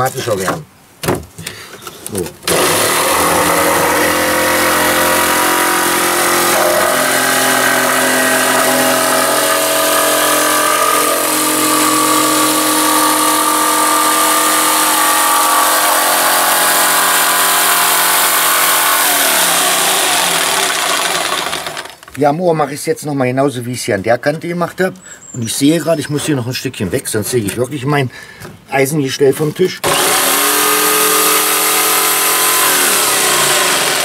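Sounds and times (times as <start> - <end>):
jigsaw cutting plywood: 2.4 - 22.0, 29.8 - 34.0.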